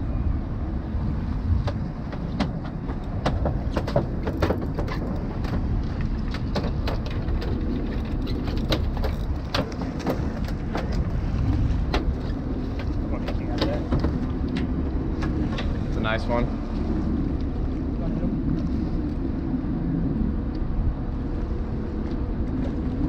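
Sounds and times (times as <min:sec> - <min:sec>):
boat engine rumble: 0:00.0 - 0:23.0
wind on microphone: 0:00.0 - 0:23.0
sharp clicks and knocks: 0:01.6 - 0:11.1.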